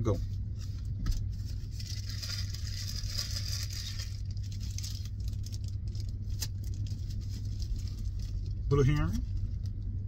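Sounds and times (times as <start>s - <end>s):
steady low hum: 0.0s - 10.0s
plastic bags crinkling: 0.8s - 9.8s.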